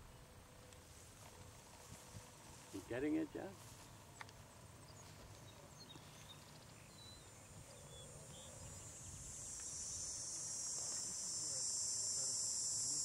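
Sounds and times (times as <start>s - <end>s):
bird chirps: 4.8s - 13.0s
high insect buzz: 8.0s - 13.0s.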